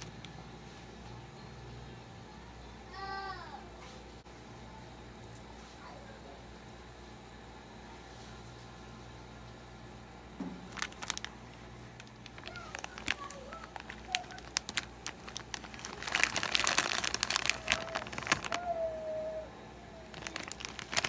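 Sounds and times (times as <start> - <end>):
plastic snack bag crinkling: 0.0 - 0.4, 10.6 - 19.0, 20.1 - 21.0.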